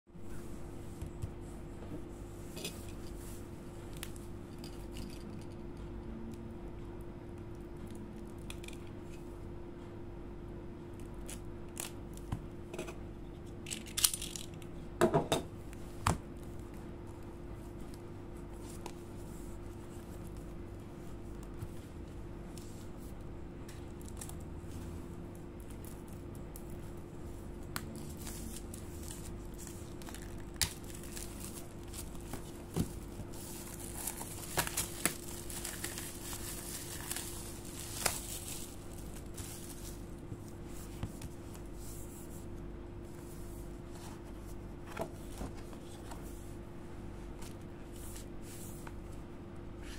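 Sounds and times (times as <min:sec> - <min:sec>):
faint steady hum: 0:00.1 - 0:49.9
book pages turning: 0:25.6 - 0:42.4.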